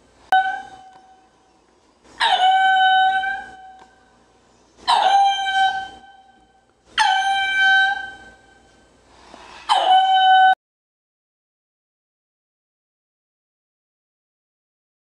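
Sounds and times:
lemur calling: 0.3s - 8.8s.

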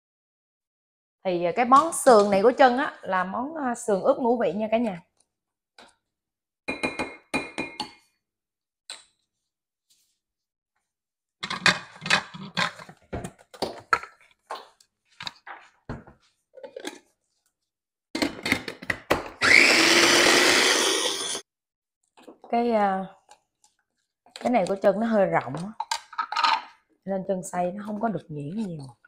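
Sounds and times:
food chopper motor whining: 19.4s - 21.4s.

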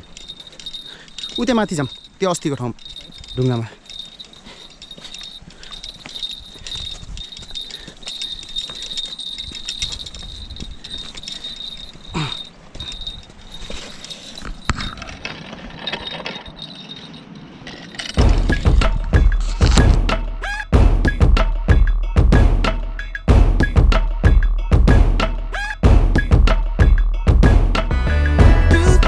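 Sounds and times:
insects buzzing: 0.0s - 14.7s
loud music: 20.1s - 29.0s.

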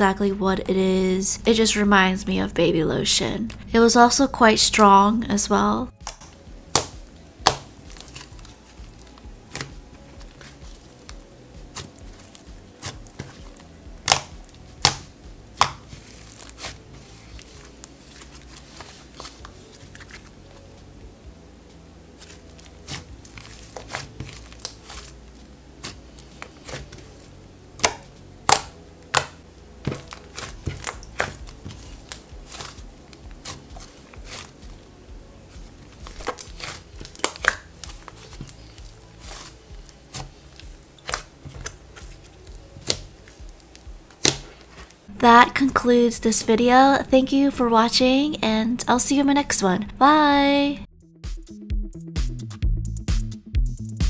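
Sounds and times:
hands kneading slime: 5.5s - 20.5s, 22.2s - 47.3s
slime popping and clicking: 14.0s - 16.7s, 27.8s - 32.8s, 36.1s - 38.0s.

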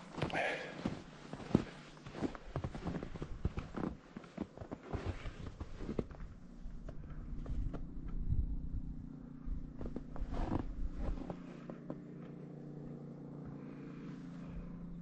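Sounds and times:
scuffs and bumps: 0.0s - 6.3s, 9.8s - 12.0s
footsteps in deep snow: 0.0s - 8.1s, 9.6s - 14.8s
low mechanical hum: 0.0s - 15.0s.

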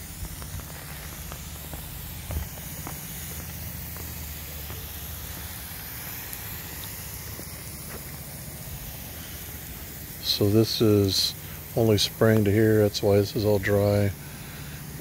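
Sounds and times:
sprinkler water spray hissing: 0.0s - 15.0s.

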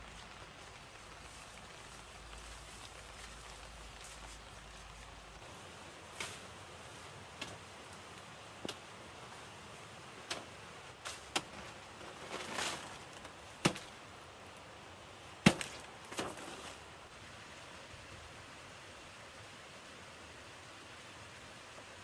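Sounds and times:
rustle of leaves: 0.0s - 22.0s
knife chopping a plant: 13.6s - 13.9s, 15.4s - 16.4s.

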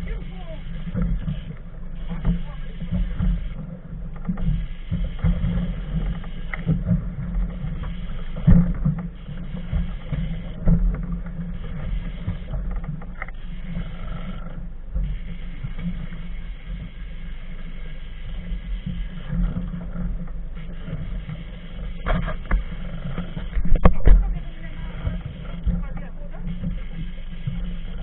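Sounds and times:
faint ticks: 0.0s - 28.0s
wind and sea buffeting microphone: 0.0s - 28.0s.

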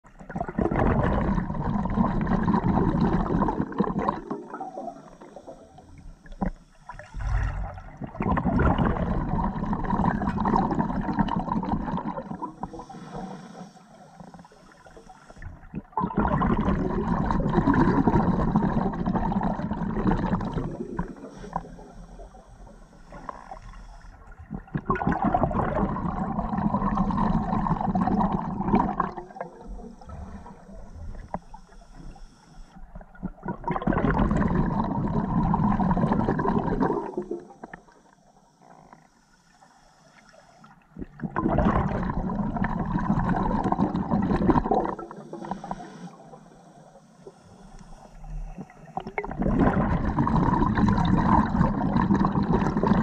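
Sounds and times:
exhaled bubbles gurgling: 0.0s - 39.1s, 40.6s - 53.0s
regulator inhalation hiss: 5.0s - 7.2s, 12.2s - 15.6s, 20.7s - 24.3s, 29.1s - 32.9s, 37.2s - 40.8s, 45.0s - 49.1s.

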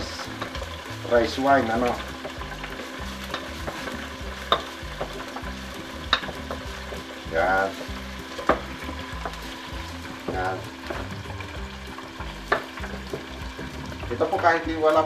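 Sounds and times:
food sizzling in a wok: 0.0s - 15.0s
wooden spatula knocking on pan: 1.7s - 6.9s, 7.7s - 11.1s.

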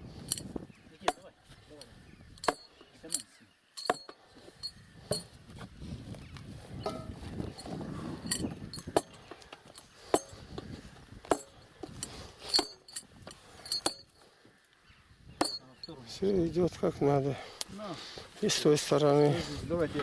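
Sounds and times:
hammer driving wooden stakes: 2.4s - 3.2s, 3.8s - 5.4s, 8.4s - 14.2s.

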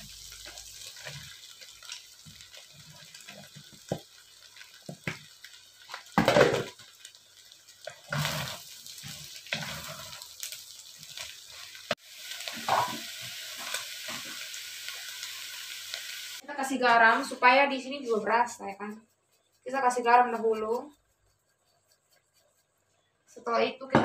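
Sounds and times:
frying sizzle: 0.0s - 19.0s.

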